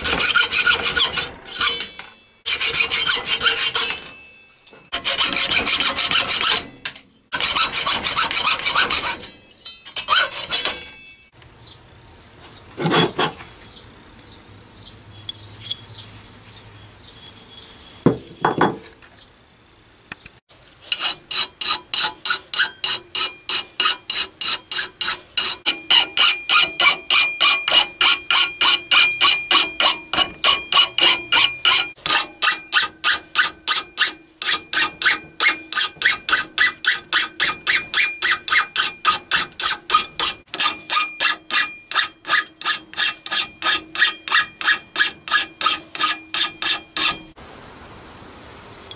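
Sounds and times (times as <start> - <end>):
file rasping on steel: 0.0 - 4.2, 4.8 - 10.9, 12.8 - 13.4, 20.8 - 47.4
metallic ring: 0.8 - 7.4, 8.8 - 11.4, 15.1 - 18.9.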